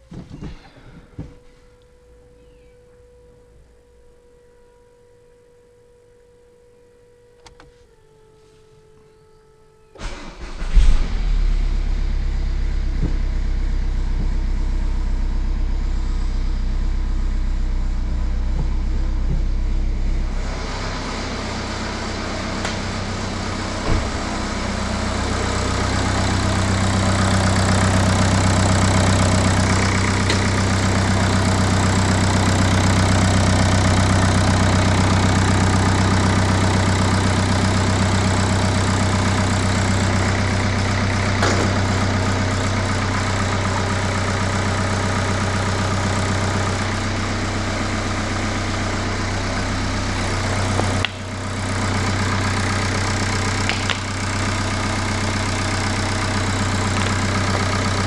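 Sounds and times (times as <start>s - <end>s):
diesel engine cranking and idling: 0.0s - 4.0s, 9.9s - 58.0s
ignition click: 7.4s - 7.8s.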